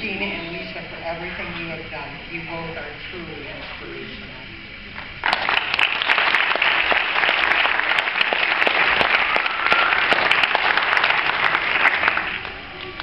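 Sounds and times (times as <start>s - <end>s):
audience applauding: 5.2s - 13.0s.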